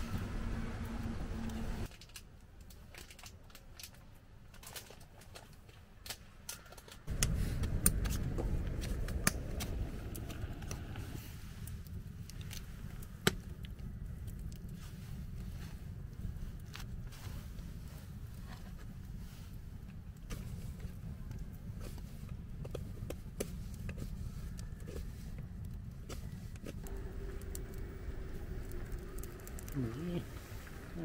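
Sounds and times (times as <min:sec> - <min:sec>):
low rumble: 0:07.1 - 0:23.0, 0:23.6 - 0:31.0.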